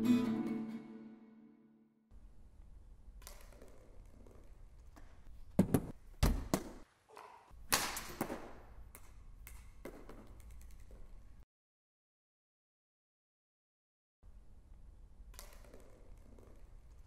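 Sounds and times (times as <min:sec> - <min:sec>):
ball bouncing on wooden floor: 0:03.2 - 0:06.8, 0:08.0 - 0:11.0.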